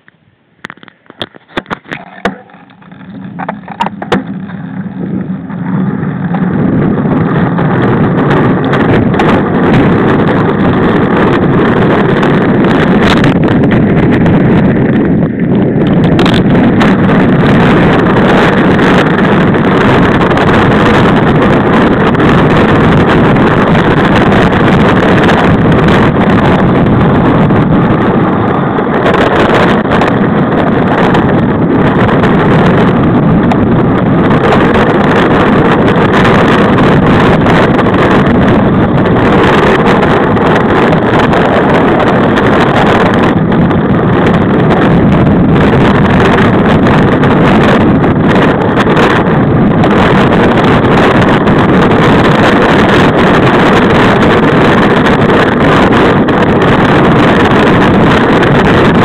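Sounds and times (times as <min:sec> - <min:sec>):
knocks and clicks: 0:00.0 - 0:06.5
wind roaring over microphone: 0:00.0 - 0:59.0.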